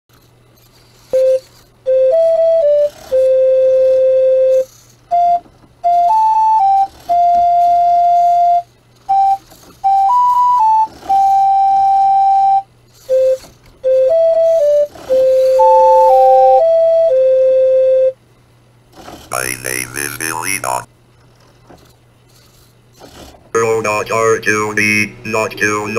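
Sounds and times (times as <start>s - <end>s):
beeping electronic tune: 13.2s - 18.2s.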